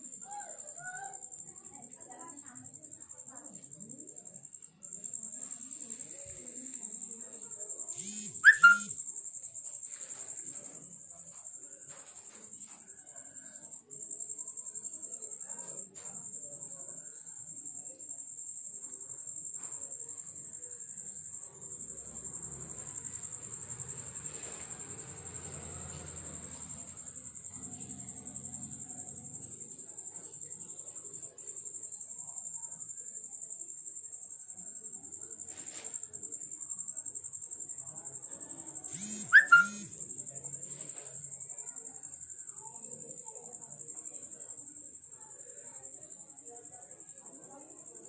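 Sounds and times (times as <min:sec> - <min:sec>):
high-pitched trill: 0:08.0 - 0:08.9, 0:39.0 - 0:39.8.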